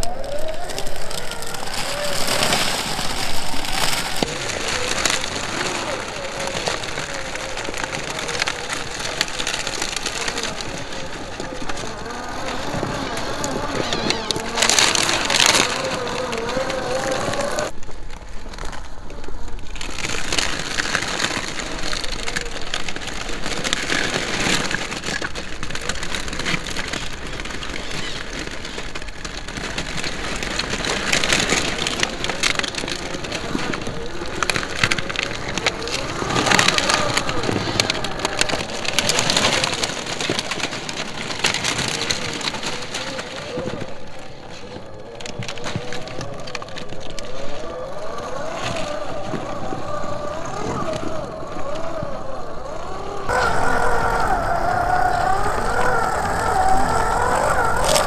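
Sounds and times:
toy car motor whine: 0:11.7 - 0:17.7, 0:47.9 - 0:58.0
tyres crunching on grit: 0:52.2 - 0:58.0.

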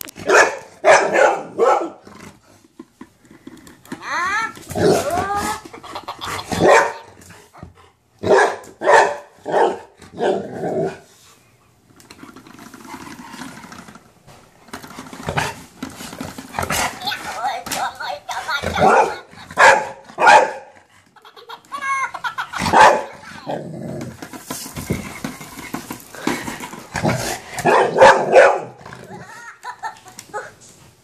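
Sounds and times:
dog barking: 0:00.2 - 0:02.0, 0:06.6 - 0:07.0, 0:08.2 - 0:10.4, 0:18.8 - 0:20.7, 0:22.7 - 0:23.1, 0:27.6 - 0:28.8.

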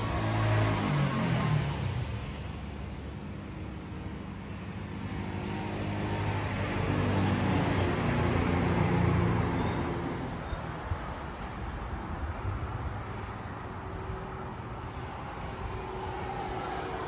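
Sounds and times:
vehicle passing by: 0:00.0 - 0:02.9, 0:04.6 - 0:09.6, 0:14.0 - 0:17.0.

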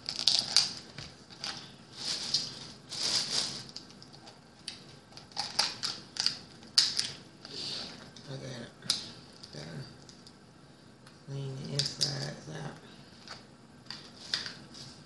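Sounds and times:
crab shell crackling and crunching: 0:00.0 - 0:07.2
crab shell snapping: 0:05.4 - 0:07.2.

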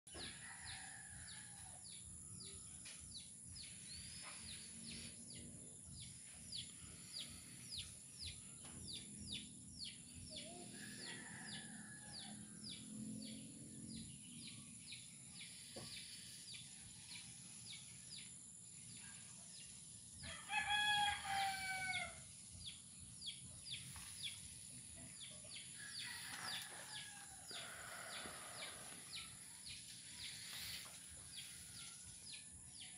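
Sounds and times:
rooster crowing: 0:10.7 - 0:12.6, 0:20.2 - 0:22.2, 0:25.8 - 0:29.4.

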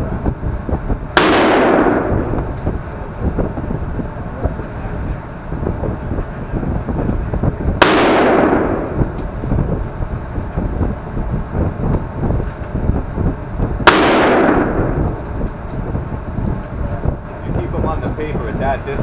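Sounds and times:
low rumble: 0:00.0 - 0:19.0
rifle shots: 0:01.2 - 0:02.7, 0:07.8 - 0:09.4, 0:13.8 - 0:15.4.

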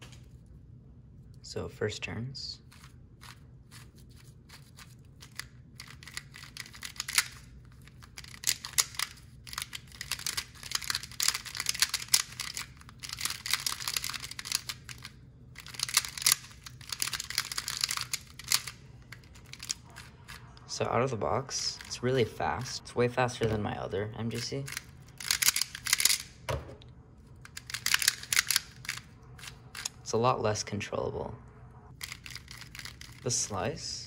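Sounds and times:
plastic puzzle clicking: 0:05.2 - 0:20.1, 0:24.4 - 0:26.3, 0:27.5 - 0:29.9.

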